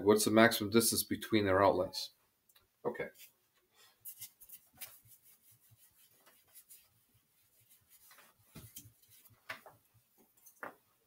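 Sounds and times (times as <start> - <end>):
marker drawing on whiteboard: 4.1 - 10.6.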